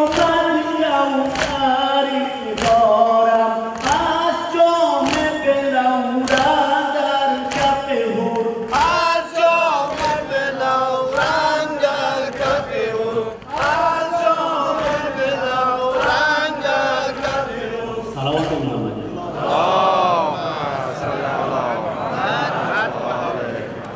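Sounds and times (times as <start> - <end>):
man reciting on a microphone: 0.0 - 23.8
crowd of men singing: 0.0 - 23.9
chest beating in unison: 12.3 - 19.5.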